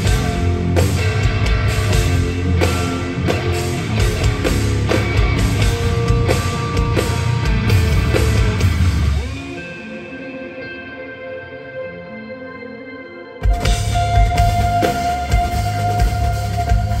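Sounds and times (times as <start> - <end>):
drum kit: 0.0 - 9.5, 13.4 - 17.0
distorted electric guitar: 0.0 - 17.0.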